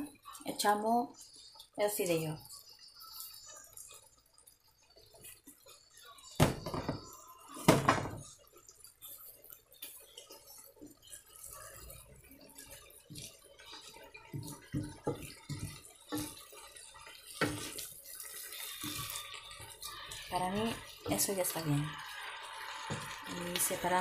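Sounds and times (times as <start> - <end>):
spatula scraping a wok: 12.6 - 24.0
wok clattering: 13.8 - 21.9.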